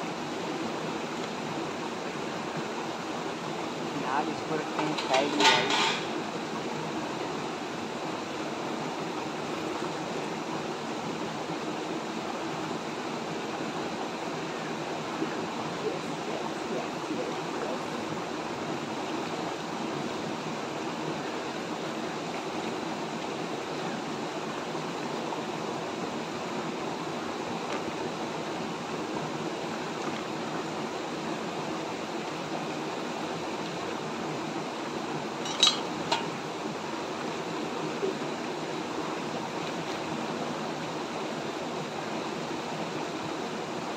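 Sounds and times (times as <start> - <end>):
river rushing over stones: 0.0 - 43.9.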